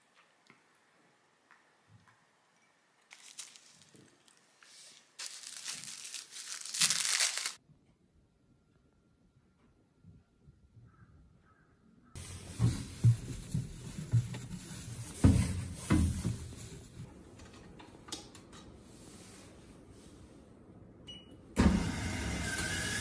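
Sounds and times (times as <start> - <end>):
washing machine whirring: 21.6 - 23.0.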